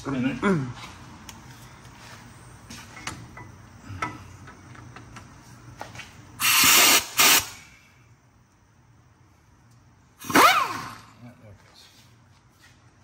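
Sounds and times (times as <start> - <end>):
pneumatic wrench spinning: 6.4 - 7.7, 10.2 - 11.1.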